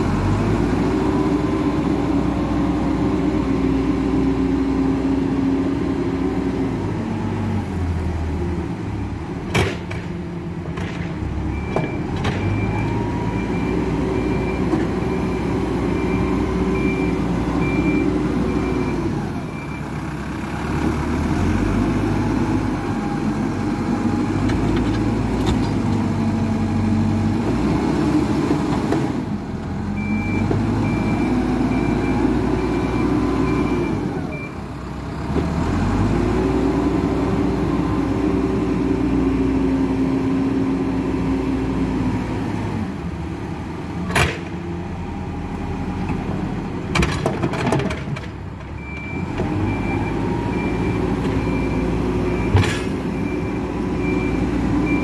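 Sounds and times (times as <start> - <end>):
diesel engine revving: 0.0 - 55.0
reversing alarm beeping: 11.5 - 19.9, 30.0 - 34.6, 48.8 - 55.0.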